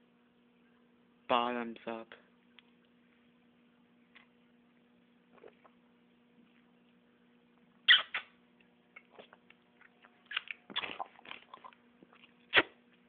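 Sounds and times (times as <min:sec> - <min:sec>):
mouth and throat noises: 0:10.0 - 0:12.8.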